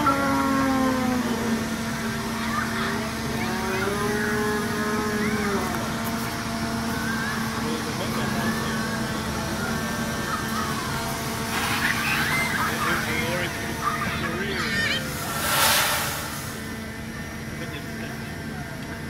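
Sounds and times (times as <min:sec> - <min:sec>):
droning hum: 0:00.0 - 0:19.0
low mechanical rumble: 0:00.0 - 0:19.0.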